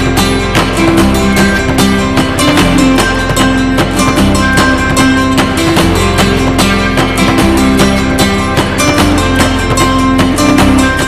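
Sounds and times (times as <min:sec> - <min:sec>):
guitar-led instrumental music: 0:00.0 - 0:11.0.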